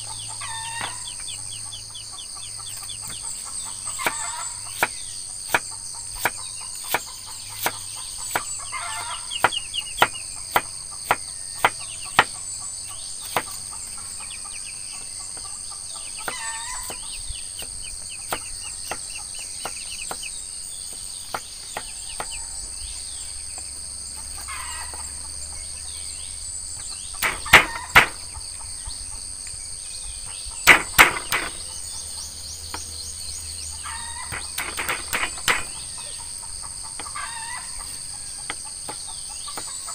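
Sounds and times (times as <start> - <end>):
chickens clucking: 0.0 - 26.0, 26.8 - 29.3, 33.7 - 39.9
insects chirring: 0.0 - 39.9
knife chopping on wooden block: 4.8 - 8.5, 9.4 - 12.4, 13.2 - 13.6, 27.2 - 28.2, 30.7 - 31.6, 34.3 - 35.8.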